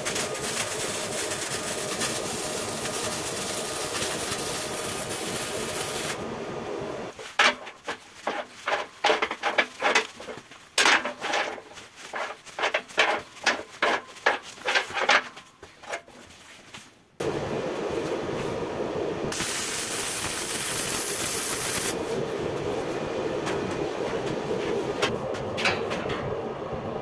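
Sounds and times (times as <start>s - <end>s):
welding arc hissing and crackling: 0.0s - 10.3s, 17.2s - 25.1s.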